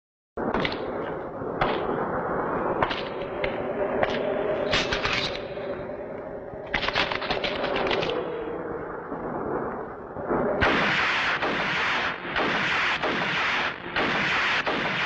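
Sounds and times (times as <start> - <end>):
gunshots: 0.4 - 1.0, 1.6 - 2.0, 2.8 - 3.2, 10.6 - 15.0.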